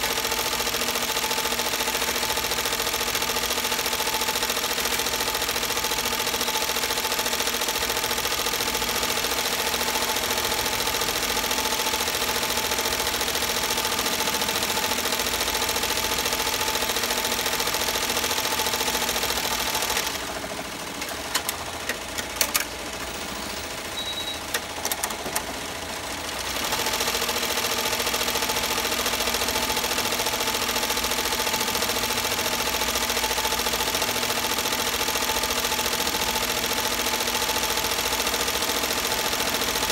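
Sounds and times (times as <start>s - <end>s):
embroidery machine rattling: 0.2s - 23.2s.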